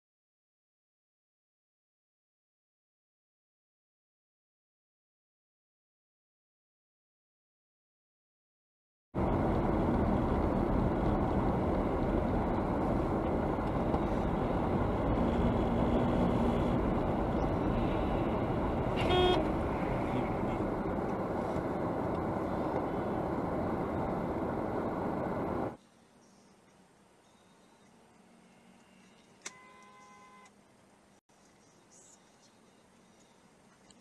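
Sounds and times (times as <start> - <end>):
car road and engine noise: 9.2 - 34.0
car horn toot: 18.9 - 20.0, 29.5 - 30.5.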